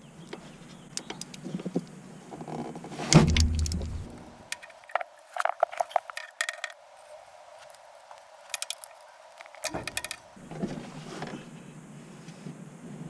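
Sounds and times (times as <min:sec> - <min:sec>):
small metal objects clinking: 0:08.5 - 0:10.2.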